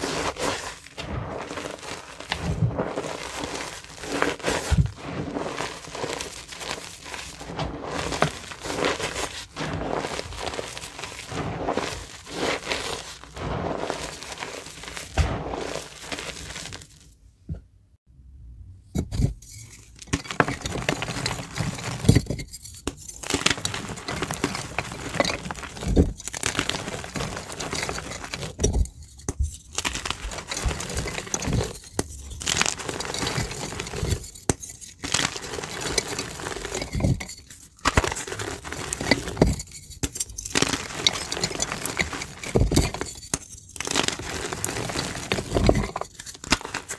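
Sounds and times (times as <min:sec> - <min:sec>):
hands rubbing chalk powder: 0:00.0 - 0:17.0
chalk blocks crunching in hands: 0:00.0 - 0:17.1, 0:19.2 - 0:46.9.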